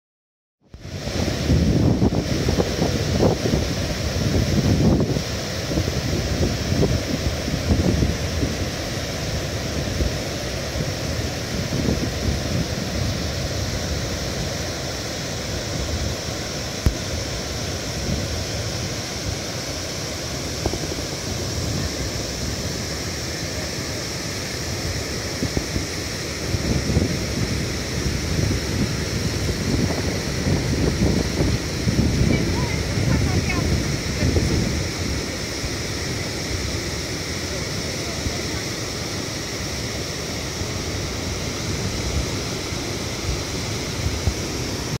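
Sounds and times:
white water rushing over rocks: 0.7 - 45.0
wind buffeting microphone: 0.8 - 8.9, 25.2 - 35.6.

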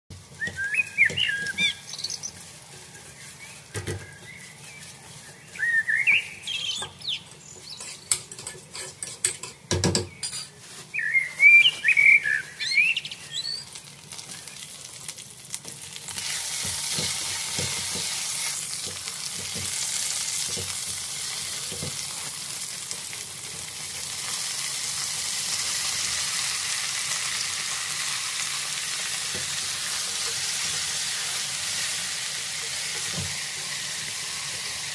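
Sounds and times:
loud steady sizzle: 0.1 - 8.8, 10.5 - 34.9
onion frying in a pot: 0.1 - 34.9
spatula scraping and knocking pot: 7.6 - 10.6, 16.5 - 22.2.

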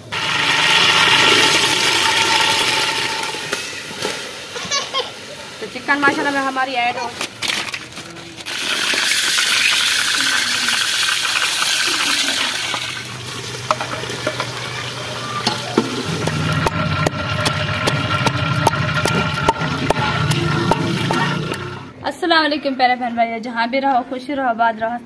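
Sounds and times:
frying hiss: 0.0 - 22.0
pots and utensils clinking: 5.9 - 21.9
low hum: 12.8 - 22.0.

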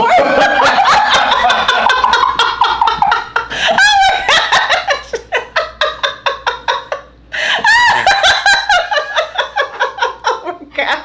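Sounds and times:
people laughing hard: 0.0 - 10.6.

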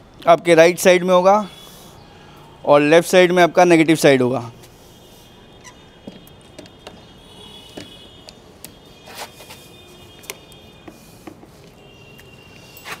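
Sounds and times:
battery handling clicks and knocks: 6.0 - 7.1, 7.7 - 8.8.

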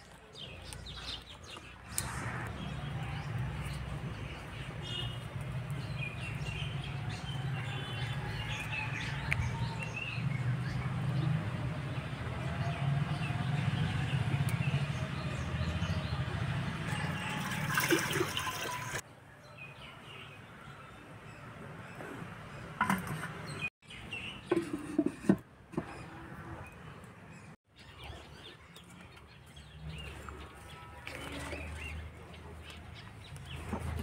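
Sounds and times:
birds chirping: 0.0 - 19.0, 25.8 - 34.0
water poured into clay pot: 16.9 - 19.0.

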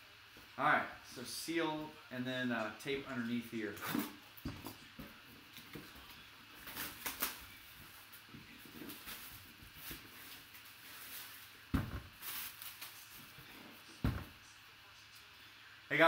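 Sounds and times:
plastic shrink wrap crinkling: 6.1 - 13.5
thump: 11.7 - 12.1.

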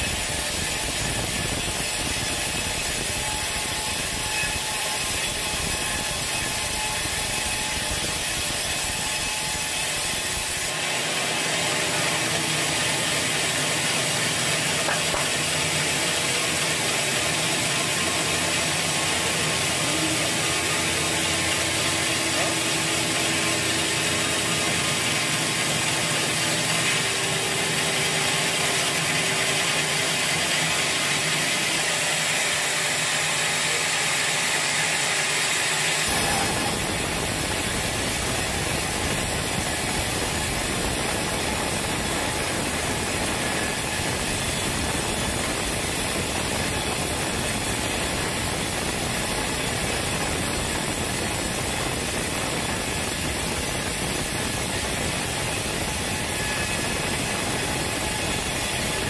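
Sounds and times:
band saw cutting log: 0.0 - 59.0.

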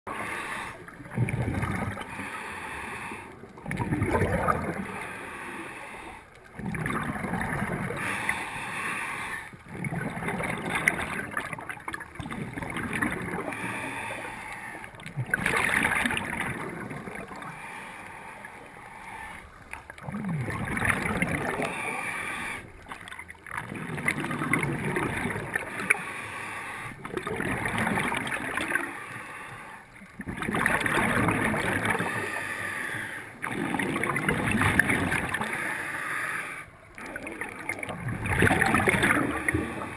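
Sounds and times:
exhaled bubbles gurgling underwater: 0.1 - 39.9
regulator inhalation hiss: 21.8 - 22.7, 26.0 - 27.0.

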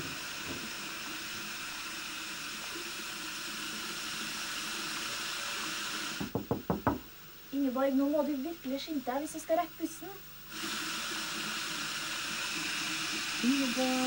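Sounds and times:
tap running into sink: 0.0 - 1.2, 6.1 - 7.1
knocks on wooden door: 6.2 - 7.1.

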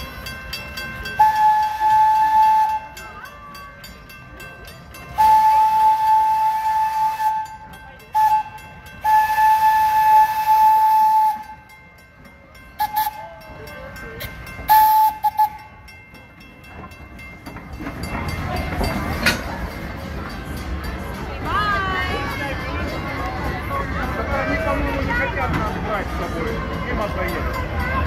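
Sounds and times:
outdoor crowd noise: 0.0 - 28.0
steam locomotive whistle blasts: 1.1 - 3.2, 5.1 - 11.7, 12.8 - 13.3, 14.7 - 15.7.

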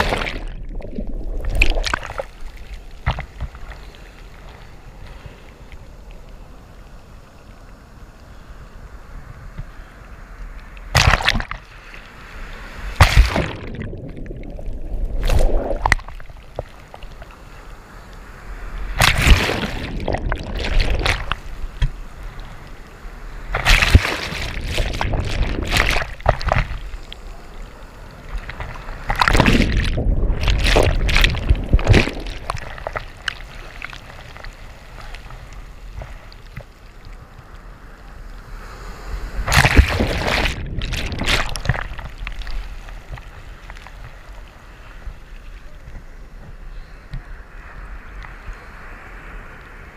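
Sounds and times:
water sloshing: 0.0 - 3.8, 19.0 - 22.0, 23.5 - 27.2, 28.3 - 35.3, 39.5 - 44.0
waves breaking: 0.0 - 49.9.

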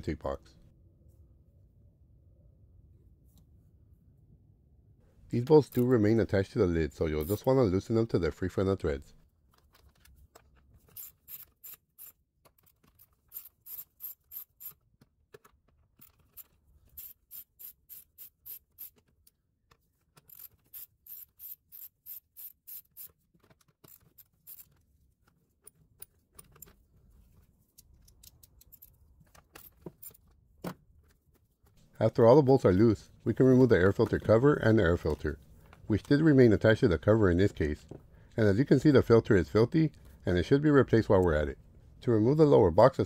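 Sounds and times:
hand ratchet clicking: 10.9 - 14.8, 16.0 - 19.1, 20.2 - 24.8.

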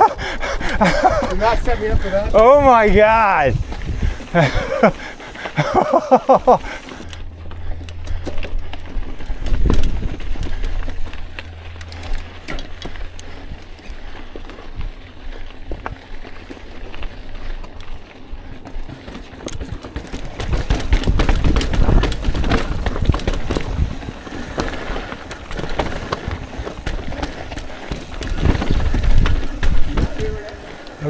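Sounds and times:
bike tyres clicking over rocks: 0.0 - 31.0
wind rumbling on microphone: 0.5 - 4.9, 7.7 - 16.0, 19.6 - 30.8.

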